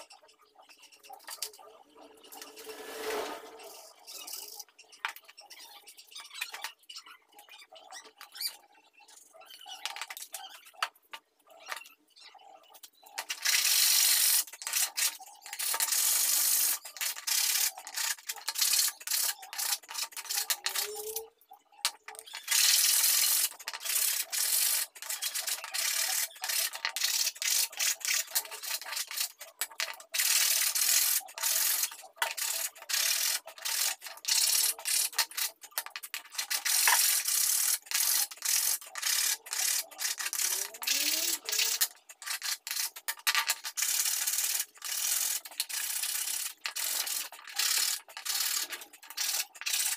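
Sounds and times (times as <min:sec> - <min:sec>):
steel tool scraping wood: 0:02.2 - 0:04.3.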